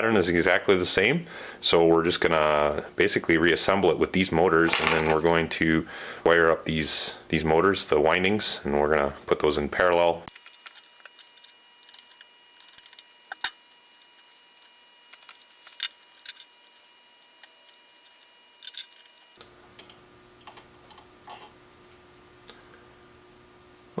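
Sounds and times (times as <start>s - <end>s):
metal parts clicking and tapping: 10.4s - 16.8s, 17.4s - 19.2s.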